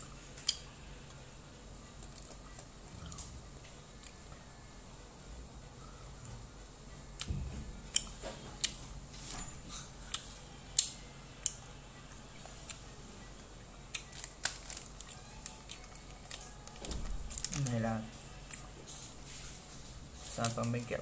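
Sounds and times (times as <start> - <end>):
chewing gummy candy: 1.9 - 3.4, 13.9 - 17.8.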